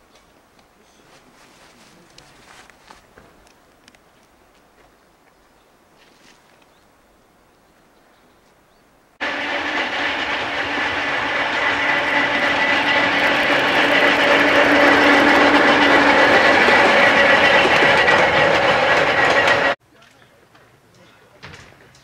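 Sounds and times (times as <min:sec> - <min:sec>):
electric locomotive running: 0:09.2 - 0:19.8
wheels clicking over rail joints: 0:09.2 - 0:22.0.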